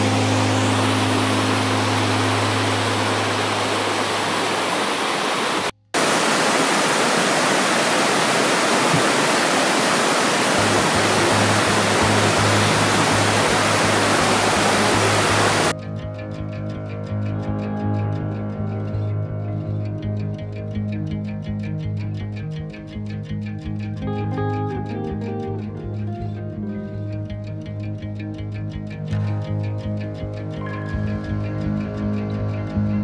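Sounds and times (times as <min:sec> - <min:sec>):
background music with bass line: 0:00.0 - 0:04.0, 0:10.6 - 0:33.0
waterfall rushing water: 0:00.0 - 0:15.7.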